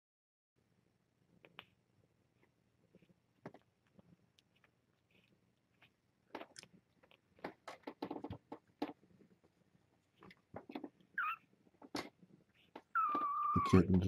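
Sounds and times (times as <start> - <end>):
kittens suckling: 1.4 - 13.9
kitten squeak: 11.1 - 11.5, 12.6 - 13.9.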